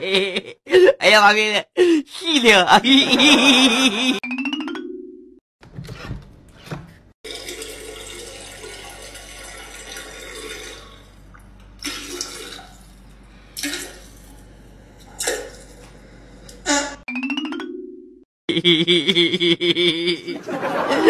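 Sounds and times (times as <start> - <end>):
liquid trickling into toilet: 7.3 - 14.4.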